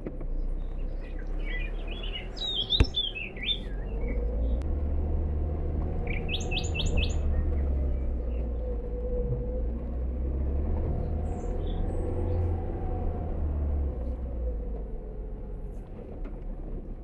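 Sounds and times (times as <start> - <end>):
vehicle driving rumble: 0.0 - 17.0
wild birds chirping: 0.3 - 4.6, 5.8 - 10.2, 10.8 - 13.2.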